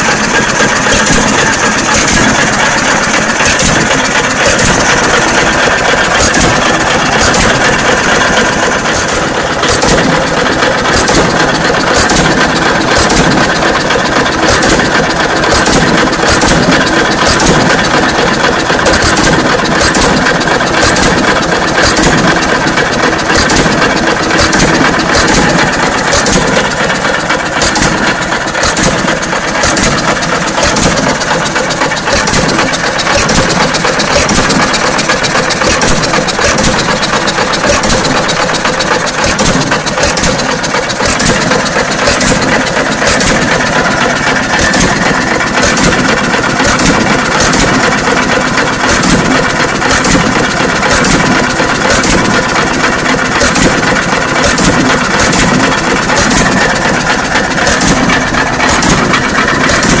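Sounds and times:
hit-and-miss engine running: 0:00.0 - 1:00.0.

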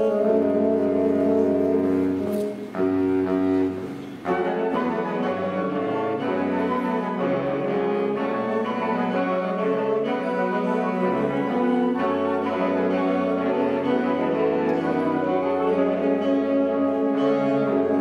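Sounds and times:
woodwind ensemble playing chords: 0:00.0 - 0:18.0.

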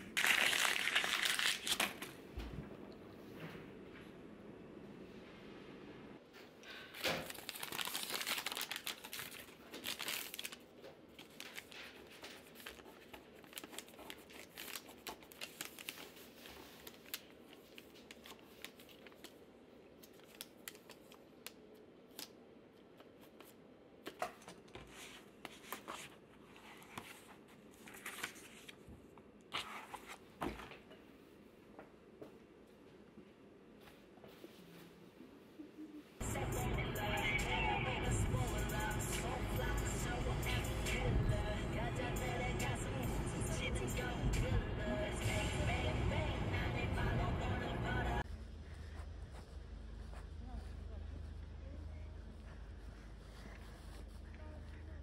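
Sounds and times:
paper crinkling: 0:00.0 - 0:02.2, 0:06.9 - 0:22.3, 0:23.0 - 0:28.9
paper rustling: 0:06.9 - 0:21.5, 0:23.0 - 0:30.8.

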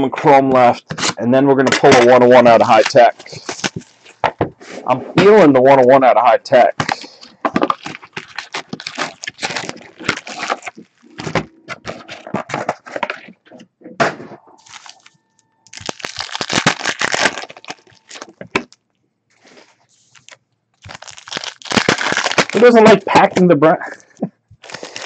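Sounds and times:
foil card packs crinkling: 0:01.8 - 0:04.2, 0:06.5 - 0:13.3, 0:14.6 - 0:15.1, 0:15.7 - 0:18.8, 0:19.4 - 0:23.2, 0:24.6 - 0:25.0.

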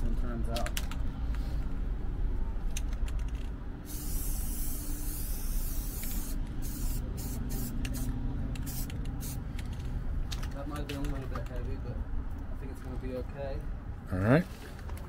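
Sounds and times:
spray paint can hissing: 0:03.8 - 0:09.4.

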